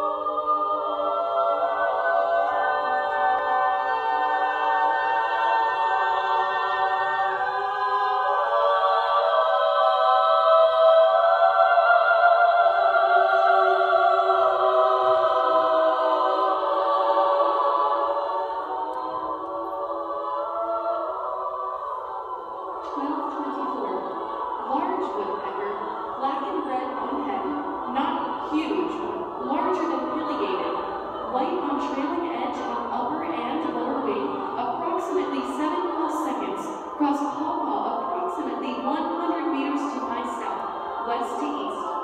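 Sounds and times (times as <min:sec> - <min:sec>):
women's choir singing: 0:00.0 - 0:42.0.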